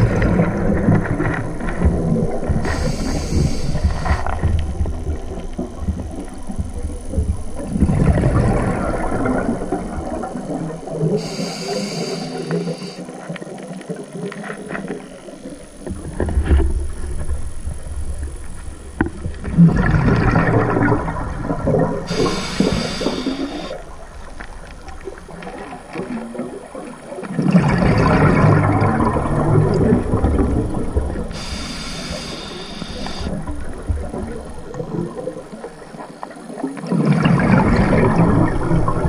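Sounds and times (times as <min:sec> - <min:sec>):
regulator hissing inhale: 0:02.6 - 0:04.4, 0:11.1 - 0:13.2, 0:22.1 - 0:23.8, 0:31.3 - 0:33.4
bubbling underwater exhalations: 0:06.8 - 0:12.8, 0:19.4 - 0:24.1, 0:24.8 - 0:35.9, 0:36.8 - 0:39.0.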